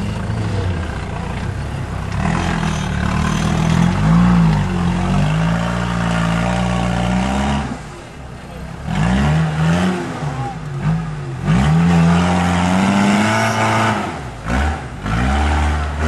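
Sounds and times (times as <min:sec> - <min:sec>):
off-road vehicle engine revving: 0:00.0 - 0:16.0.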